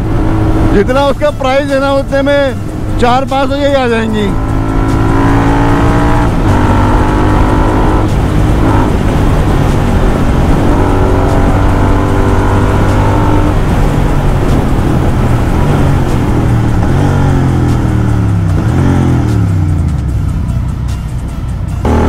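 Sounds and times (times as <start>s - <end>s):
motorcycle engine accelerating: 0.0s - 20.8s, 21.8s - 22.0s
road and wind noise: 0.0s - 22.0s.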